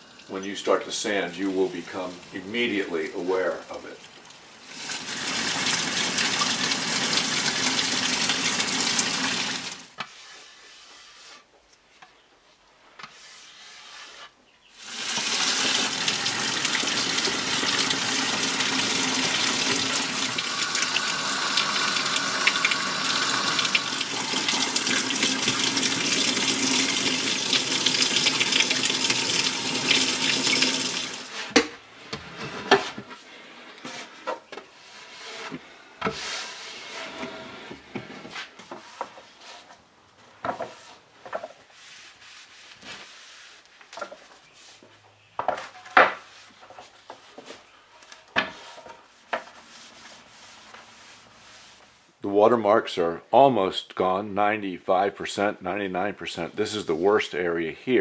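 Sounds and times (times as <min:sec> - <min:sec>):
water running: 0:00.0 - 0:09.9, 0:14.8 - 0:31.3.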